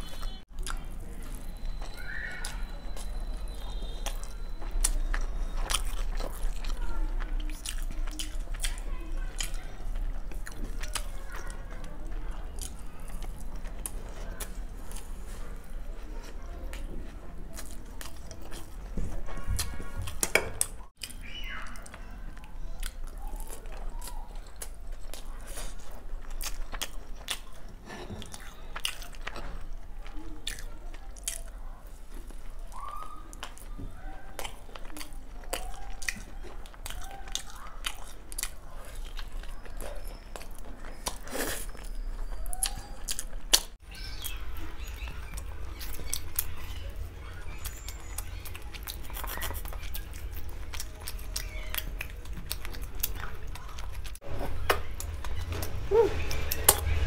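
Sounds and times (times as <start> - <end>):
chewing with wet mouth clicks: 0.0 - 57.0
lip smacks: 32.3 - 57.0.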